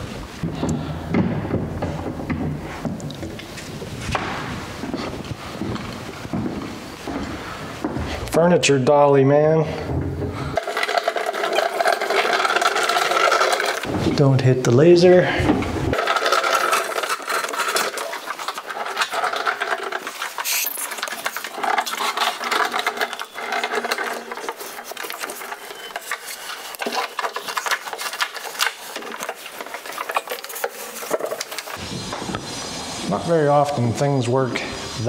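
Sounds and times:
cabinet knocking and rubbing: 0.0 - 8.3
dolly casters rolling and rattling: 0.0 - 32.3.

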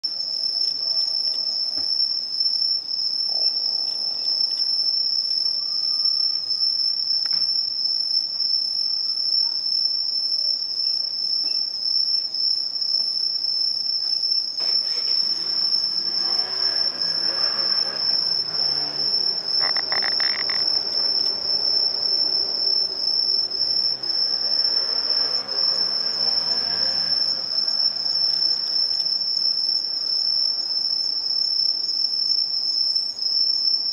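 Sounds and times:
crickets trilling: 0.0 - 33.9
low sound passing in the distance: 15.6 - 29.2.

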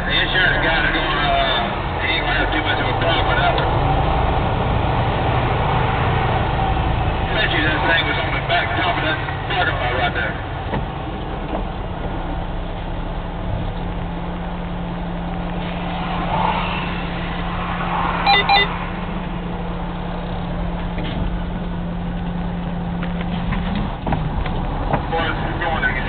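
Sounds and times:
truck engine humming: 0.0 - 26.0
quick beeps: 18.2 - 18.7.

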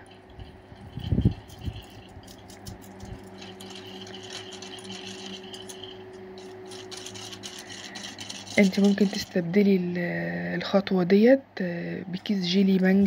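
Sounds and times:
whisk clicking against metal pot: 0.0 - 9.4
steady low hum: 0.0 - 13.0.

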